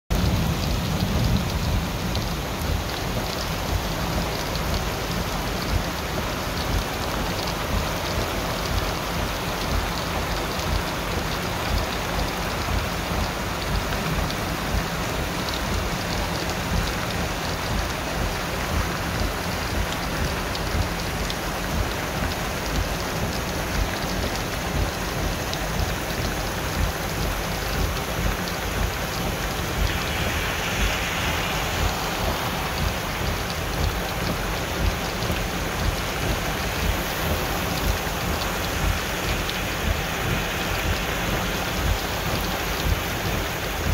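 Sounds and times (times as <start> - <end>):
heavy rain on pavement: 0.1 - 43.9
low rumble: 0.1 - 43.9.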